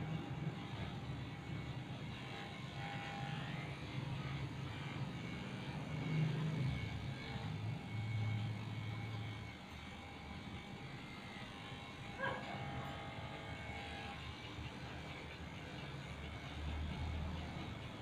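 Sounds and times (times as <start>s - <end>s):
electric clippers humming: 0.0s - 18.0s.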